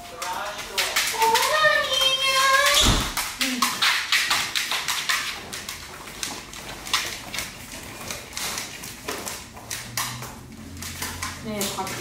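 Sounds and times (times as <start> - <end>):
dog claws ticking on hard floor: 0.0 - 12.0
footsteps: 0.0 - 12.0.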